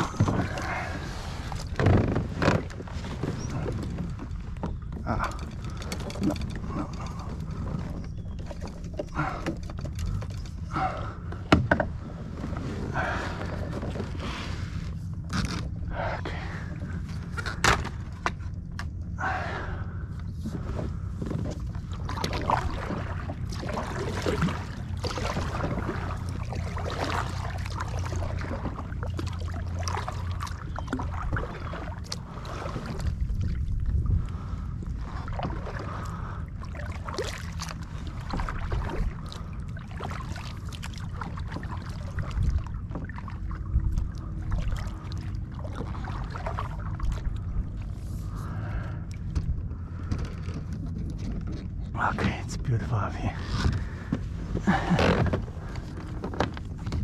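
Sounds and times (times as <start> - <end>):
low rumble: 0.0 - 57.0
paddle knocking on plastic hull: 11.4 - 11.9
paddle splashing in water: 21.5 - 33.8, 34.4 - 48.8.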